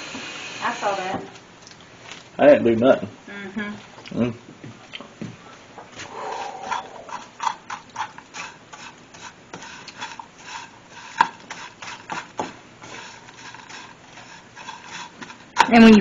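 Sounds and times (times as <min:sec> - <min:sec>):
plastic spoon scraping a pan: 0:06.2 - 0:16.0.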